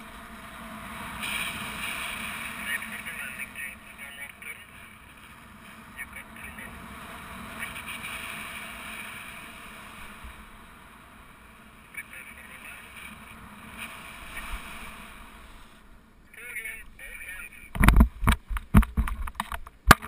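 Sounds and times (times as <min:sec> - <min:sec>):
wind rushing over microphone: 0:00.0 - 0:15.4, 0:16.7 - 0:19.6.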